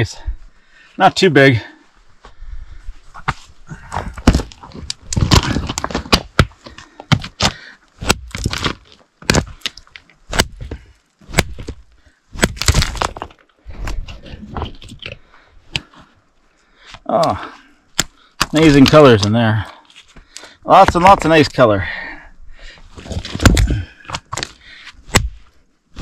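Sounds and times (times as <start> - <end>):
rock hammer cracking stone: 4.0 - 11.8, 12.4 - 13.4, 17.2 - 19.3, 20.7 - 21.4, 23.0 - 25.4.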